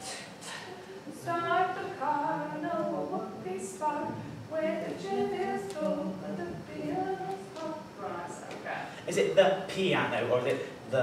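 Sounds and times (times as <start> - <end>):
voices singing: 0.0 - 8.7.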